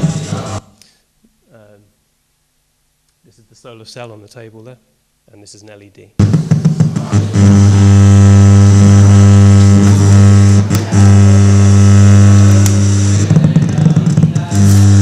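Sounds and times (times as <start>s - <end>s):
loud electrical hum: 0.0s - 1.0s, 6.2s - 15.0s
click: 9.6s - 9.8s, 12.6s - 12.8s
crackles and pops: 12.4s - 13.4s.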